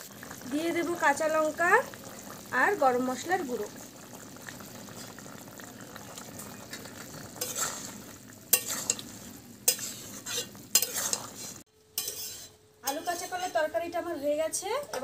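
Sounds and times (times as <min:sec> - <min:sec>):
curry simmering in pot: 0:00.0 - 0:12.6
spatula scraping metal pot: 0:07.2 - 0:13.7.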